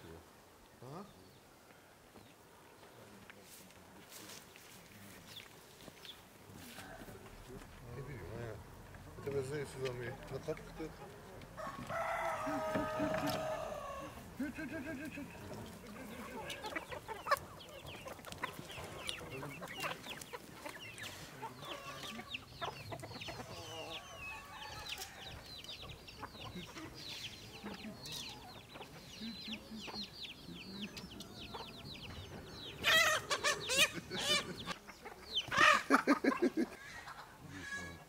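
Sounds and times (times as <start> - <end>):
chickens chirping: 3.8 - 38.0
chickens drawn-out calls: 8.1 - 38.0.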